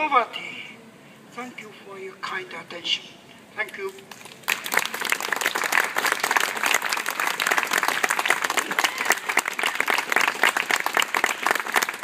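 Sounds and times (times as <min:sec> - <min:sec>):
crowd applauding: 0:04.1 - 0:12.0.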